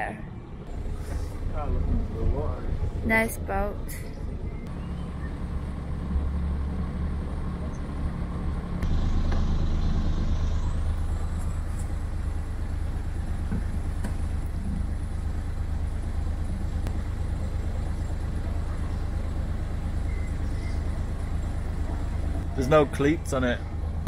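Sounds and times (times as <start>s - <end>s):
boat engine humming: 0.0s - 24.0s.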